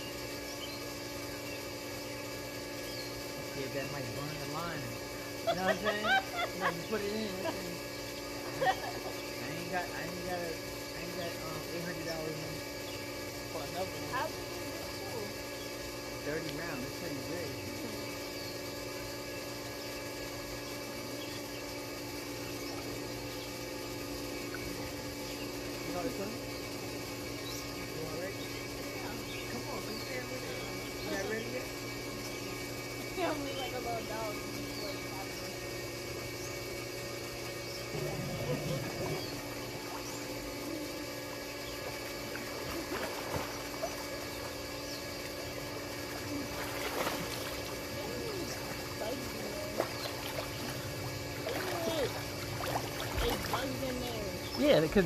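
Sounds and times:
pool filter pump humming: 0:00.0 - 0:55.0
swimmers splashing lightly: 0:46.0 - 0:48.0, 0:49.7 - 0:53.9.

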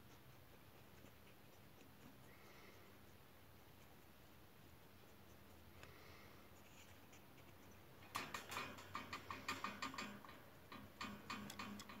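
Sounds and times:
guinea pig clicking: 0:07.0 - 0:12.0.

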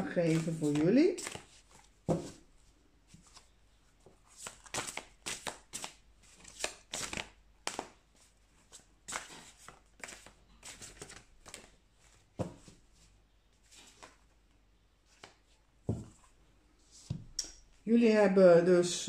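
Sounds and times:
cards being shuffled: 0:00.0 - 0:02.4, 0:04.3 - 0:12.7, 0:13.6 - 0:14.3.

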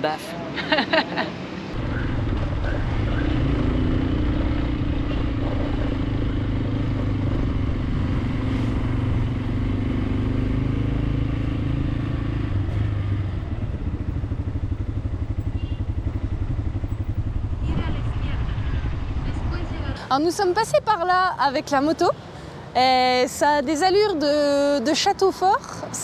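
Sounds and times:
motorcycle engine running: 0:01.8 - 0:20.0.

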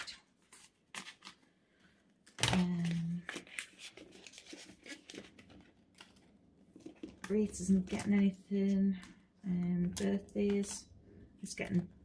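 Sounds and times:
paper and plastic rustling: 0:00.0 - 0:01.5, 0:02.2 - 0:09.2.

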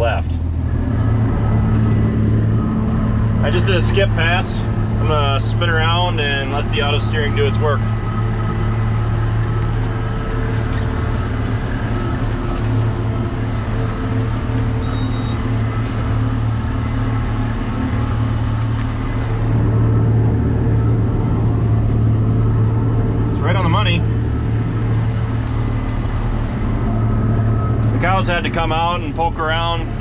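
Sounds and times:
tractor engine hum: 0:00.0 - 0:30.0
brief high beep: 0:14.8 - 0:15.4.

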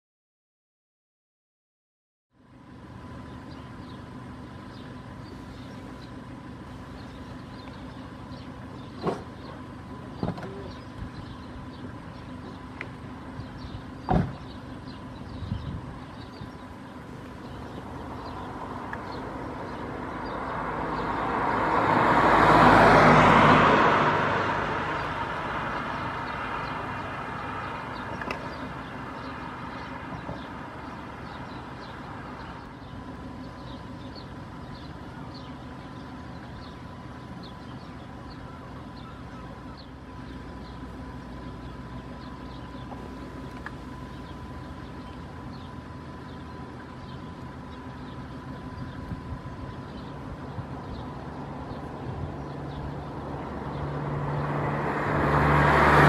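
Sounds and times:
background traffic hum: 0:02.3 - 0:56.0
vehicle passing close by: 0:17.3 - 0:32.7, 0:50.3 - 0:56.0.

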